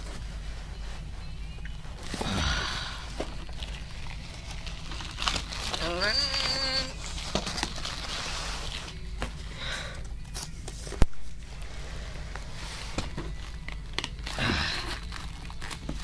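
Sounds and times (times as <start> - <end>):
packaging rustling and knocking: 3.2 - 9.5, 12.8 - 16.0.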